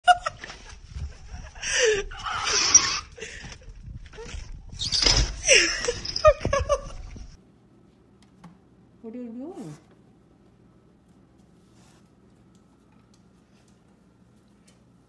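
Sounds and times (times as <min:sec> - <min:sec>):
person laughing: 0:05.4 - 0:07.3.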